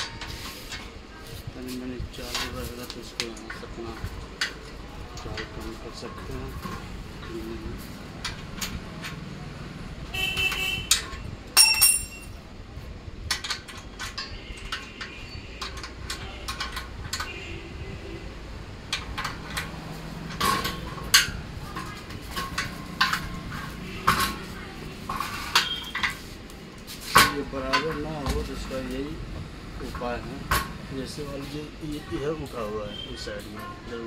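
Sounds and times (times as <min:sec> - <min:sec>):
metal clanks and knocks: 0:10.4 - 0:12.4, 0:13.2 - 0:17.4, 0:18.8 - 0:26.3, 0:27.0 - 0:28.9
short metallic rings: 0:10.9 - 0:12.4.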